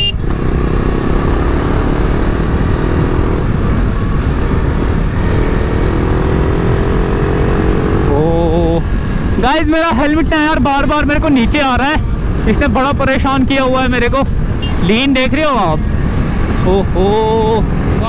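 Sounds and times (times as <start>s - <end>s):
motorcycle engine running: 0.0s - 9.4s
wind rumble on microphone: 2.0s - 18.0s.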